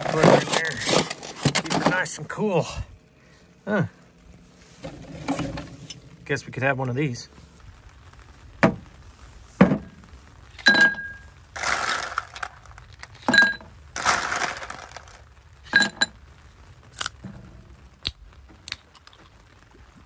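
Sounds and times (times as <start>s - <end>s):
ice cubes clinking into a glass: 10.7s - 12.6s, 13.2s - 16.1s
ice cubes rattling in a glass: 11.6s - 15.2s.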